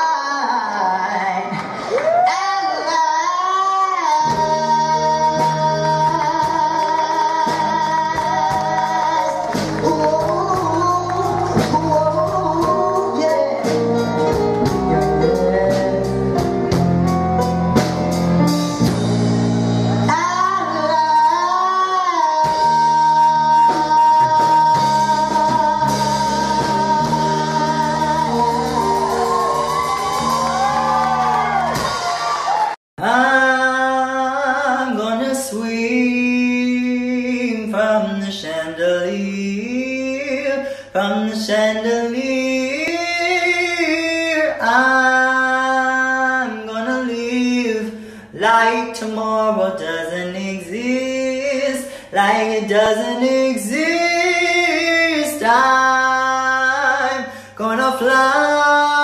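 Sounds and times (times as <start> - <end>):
band and drums playing: 4.2 - 32.8.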